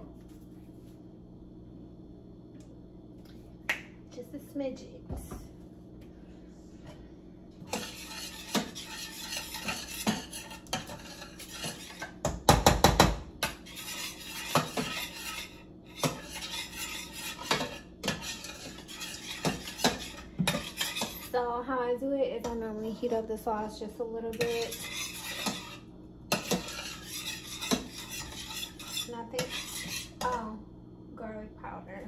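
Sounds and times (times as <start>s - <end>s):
spoon stirring sauce in pot: 7.7s - 12.5s, 13.4s - 21.3s, 24.4s - 30.3s.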